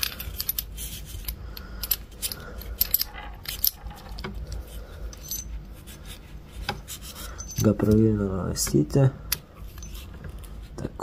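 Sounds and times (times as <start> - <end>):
small metal parts clinking: 0.0 - 5.6, 7.2 - 10.1.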